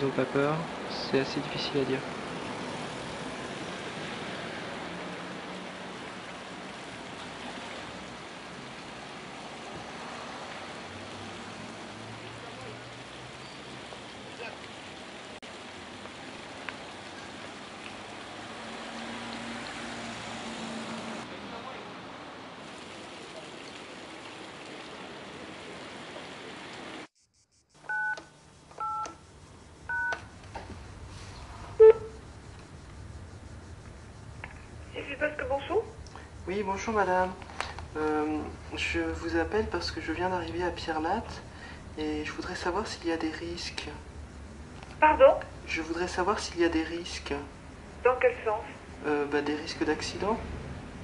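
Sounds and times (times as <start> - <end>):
outdoor background noise: 0.0 - 51.0
touch-tone keypad beeps: 27.9 - 29.2, 29.9 - 30.2, 31.8 - 32.1
brief loud tone: 31.8 - 32.2.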